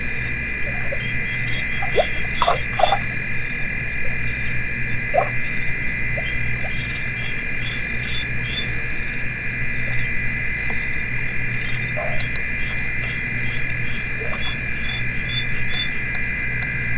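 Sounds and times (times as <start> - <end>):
low hum: 0.0 - 16.9
short chirping calls: 11.5 - 16.0.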